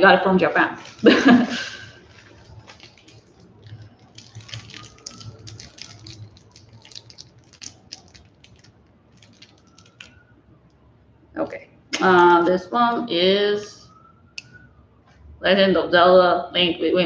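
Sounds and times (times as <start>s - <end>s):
plastic wrapper crinkling: 0.6s - 10.4s.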